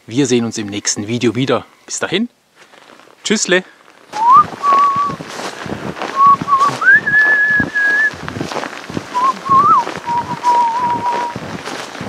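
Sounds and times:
snowshoe steps crunching snow: 0:02.6 - 0:12.0
man whistling slow tune: 0:04.2 - 0:05.2, 0:06.2 - 0:08.1, 0:09.2 - 0:11.3.

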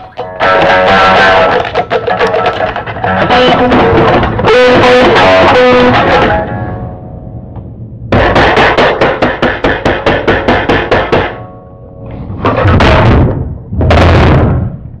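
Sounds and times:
rapid loud bangs: 0:08.1 - 0:11.4.

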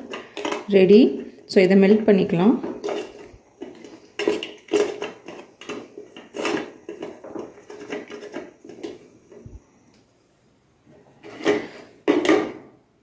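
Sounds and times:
metal spoon scraping metal bowl: 0:02.7 - 0:09.0.

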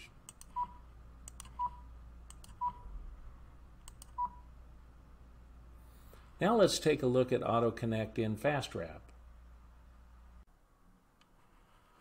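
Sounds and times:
computer mouse clicks: 0:00.3 - 0:00.6, 0:01.2 - 0:01.6, 0:02.3 - 0:02.6, 0:03.8 - 0:04.2.

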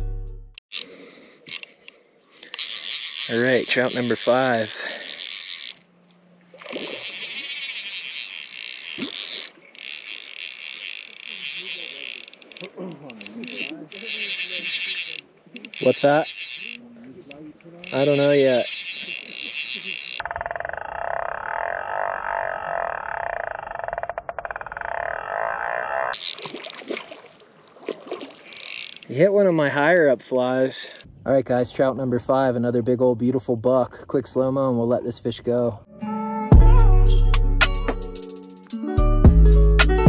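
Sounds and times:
fly reel ratchet rasp: 0:02.4 - 0:06.0, 0:06.7 - 0:16.9, 0:17.8 - 0:26.8, 0:28.4 - 0:29.1.

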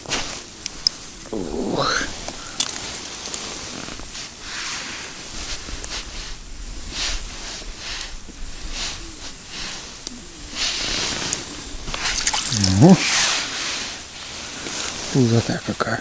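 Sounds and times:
soft rustling swishes: 0:00.0 - 0:16.0
wind on microphone: 0:03.4 - 0:14.1.

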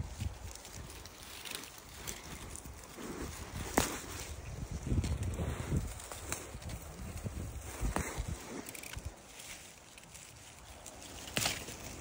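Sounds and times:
faint rustling of leaves: 0:00.0 - 0:12.0
wind buffeting microphone: 0:01.8 - 0:09.3
sharp snaps of plants: 0:03.5 - 0:04.4, 0:11.1 - 0:12.0.

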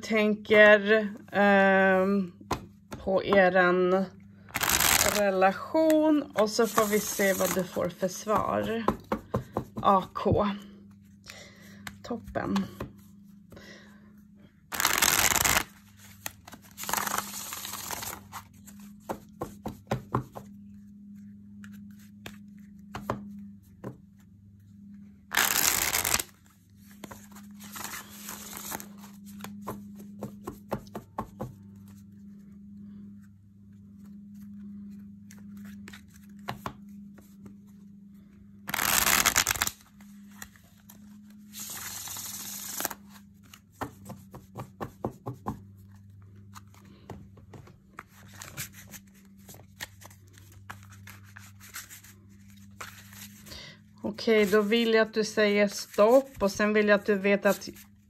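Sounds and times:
cards riffle shuffled: 0:04.5 - 0:05.2, 0:06.4 - 0:07.8, 0:14.7 - 0:19.2, 0:25.3 - 0:30.7, 0:38.7 - 0:40.9, 0:41.5 - 0:44.4, 0:48.0 - 0:53.5
soft card shuffling: 0:04.5 - 0:08.8, 0:14.7 - 0:23.5, 0:25.3 - 0:44.7, 0:45.8 - 0:53.5, 0:54.3 - 0:55.0.

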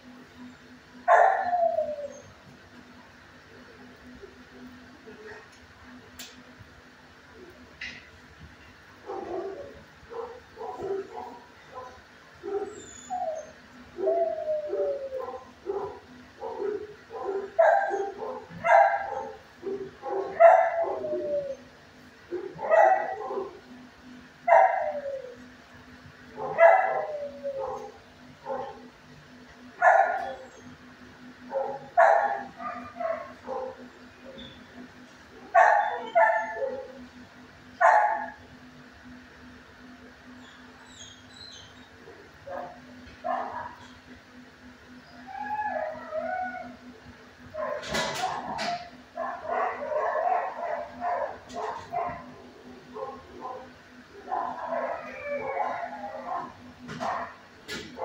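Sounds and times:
dog barking and yelping: 0:01.1 - 0:02.3, 0:09.1 - 0:21.7, 0:22.3 - 0:23.7, 0:24.5 - 0:25.4, 0:26.4 - 0:28.9, 0:29.8 - 0:30.7, 0:31.4 - 0:34.5, 0:35.4 - 0:37.0, 0:37.8 - 0:38.4, 0:42.5 - 0:44.0, 0:45.2 - 0:46.8, 0:47.5 - 0:58.0.

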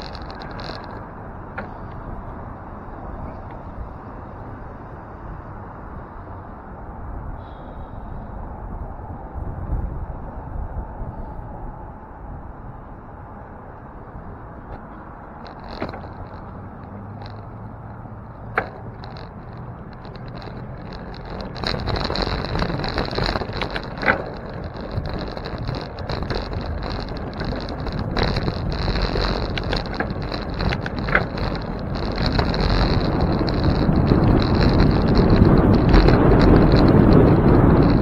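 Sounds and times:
sharp clicks from bumps: 0:00.0 - 0:06.5, 0:12.3 - 0:38.0
bicycle tyre and road noise: 0:00.0 - 0:38.0
wind on microphone: 0:00.0 - 0:38.0.

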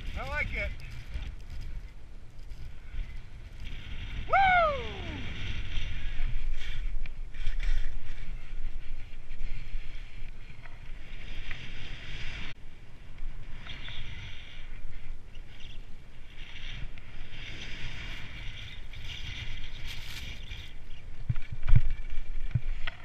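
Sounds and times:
wind rumbling on microphone: 0:00.0 - 0:23.0
person whooping: 0:04.3 - 0:05.4.

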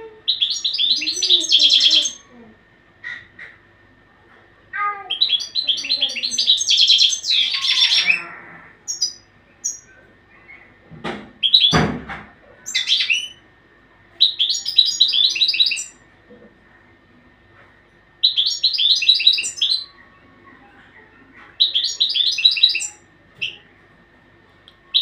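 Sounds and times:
goldfinch twittering song: 0:00.3 - 0:02.2, 0:05.1 - 0:08.2, 0:14.2 - 0:16.0, 0:18.2 - 0:19.8.

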